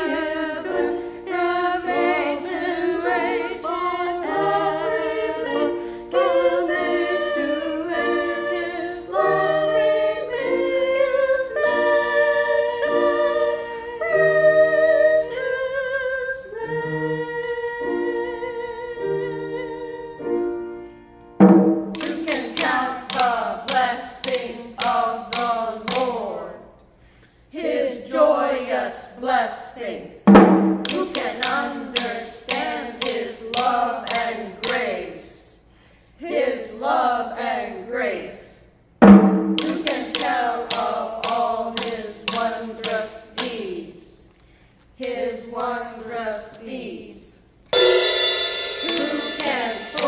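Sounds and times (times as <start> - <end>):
choir singing a cappella: 0.0 - 26.8, 27.5 - 38.8, 39.4 - 44.3, 45.0 - 50.0.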